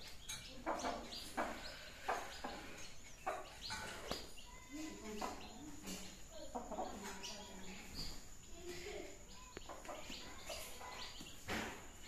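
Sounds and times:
chicks peeping: 0.0 - 12.0
hen clucking: 0.5 - 4.6.

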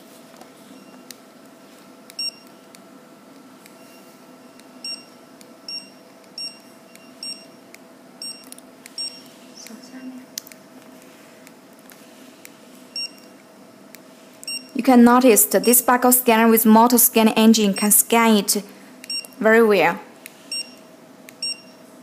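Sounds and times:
barcode scanner beeps: 2.2 - 2.6, 3.8 - 7.6, 8.2 - 9.3, 12.9 - 13.3, 14.4 - 14.8, 15.6 - 16.0, 17.6 - 18.0, 19.0 - 19.4, 20.5 - 20.8, 21.4 - 21.8.

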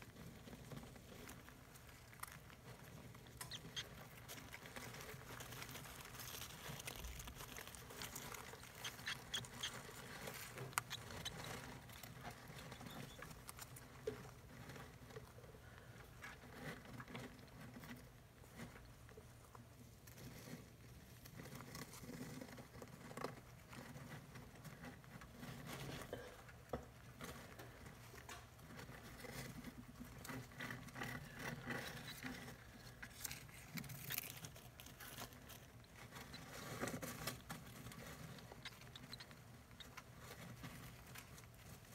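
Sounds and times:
rustling of shredded paper: 3.9 - 14.7.

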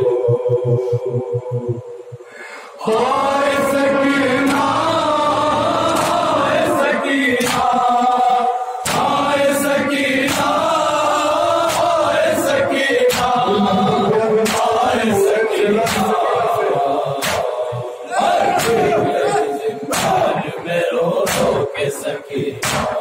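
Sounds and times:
men chanting in unison: 0.0 - 23.0
hands slapping chests: 5.9 - 6.3, 7.4 - 7.7, 10.2 - 10.6, 11.6 - 12.0, 13.1 - 13.4, 14.4 - 14.8, 15.8 - 16.2, 17.2 - 17.6, 18.6 - 18.9, 19.9 - 20.4, 21.2 - 21.6, 22.6 - 23.0.

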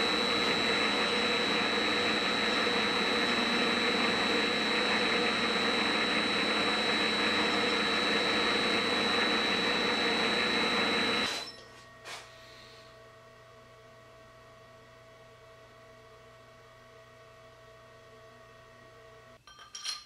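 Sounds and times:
machine drone: 0.0 - 11.4
metal lathe whining: 0.0 - 11.6.

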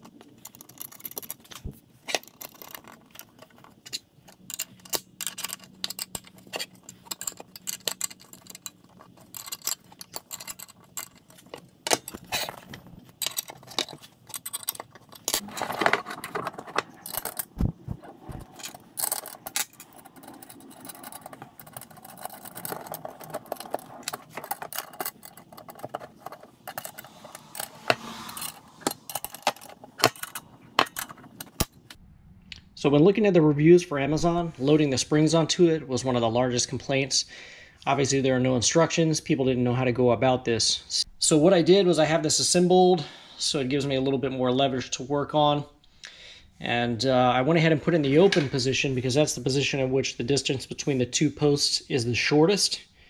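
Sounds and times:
metal clicks and scrapes: 0.0 - 32.0
metal hinge parts clinking: 0.0 - 32.0.

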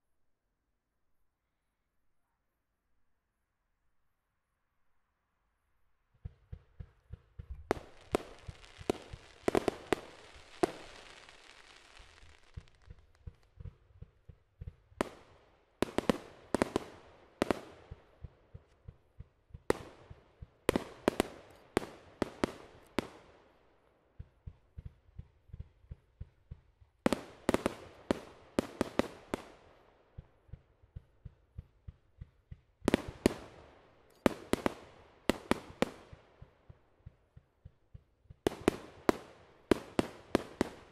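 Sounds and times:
fireworks bursting: 6.2 - 23.4, 24.2 - 37.4, 38.3 - 40.9
firework hiss: 7.8 - 12.6.

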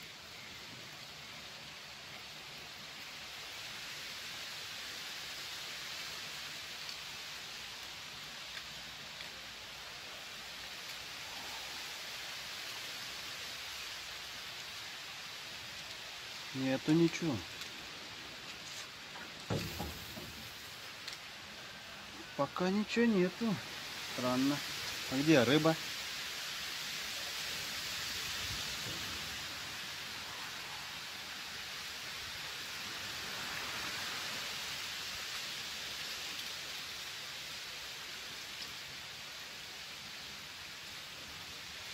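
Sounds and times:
breeze hissing over water: 0.0 - 41.9
wind: 0.0 - 41.9
small waves rippling: 17.2 - 25.1.

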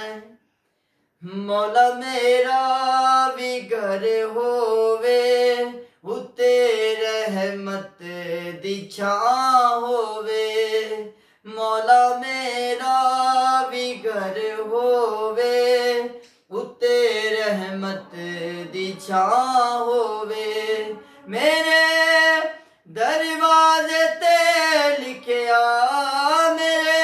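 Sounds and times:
man singing unaccompanied: 0.0 - 0.4, 1.2 - 27.0.

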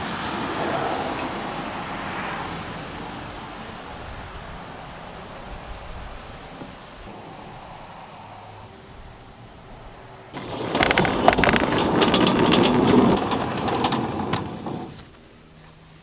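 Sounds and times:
barn door sliding on track: 10.3 - 15.1.

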